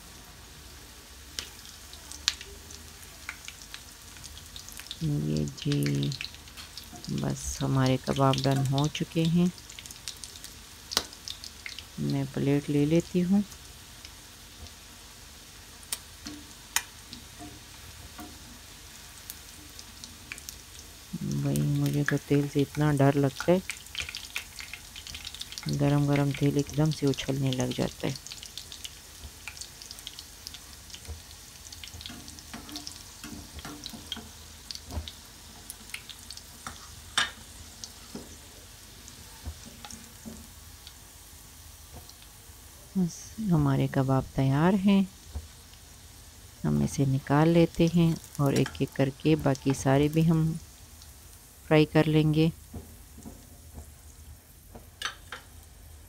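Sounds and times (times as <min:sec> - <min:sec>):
food sizzling in oil: 0:00.0 - 0:56.0.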